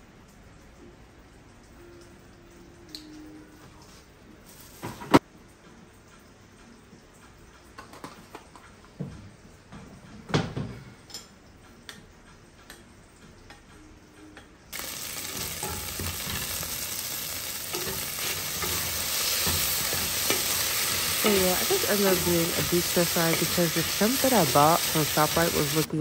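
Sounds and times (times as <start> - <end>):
meat sizzling in a pan: 14.7 - 25.9.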